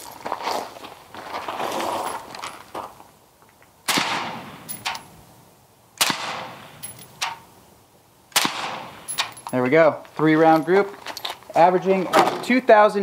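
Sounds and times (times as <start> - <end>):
suppressed rifle shots: 3.9 - 5.0, 6.0 - 7.5, 8.3 - 9.4.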